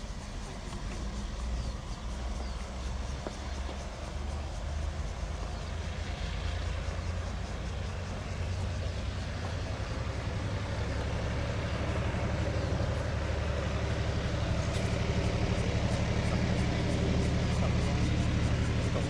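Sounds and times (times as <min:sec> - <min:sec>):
faint ticks: 0:00.0 - 0:12.0
locomotive engine hum: 0:00.0 - 0:19.0.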